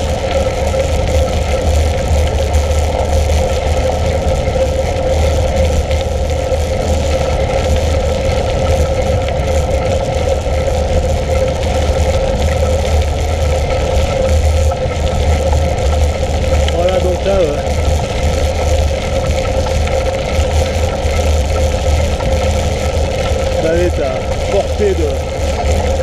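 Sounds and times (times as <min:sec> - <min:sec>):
bike tyres on gravel: 0:00.0 - 0:26.0
steady hum: 0:00.0 - 0:26.0
wind buffeting microphone: 0:00.0 - 0:26.0.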